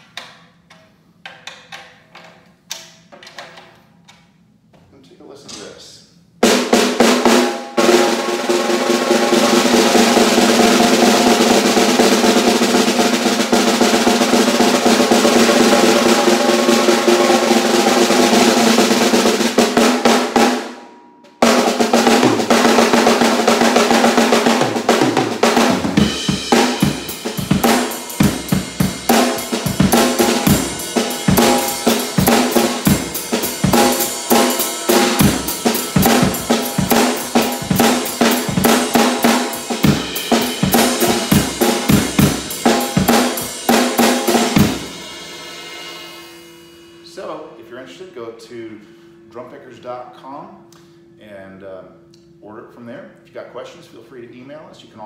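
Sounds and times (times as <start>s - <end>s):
drum kit beat: 6.2s - 47.3s
snare drum roll: 6.4s - 45.1s.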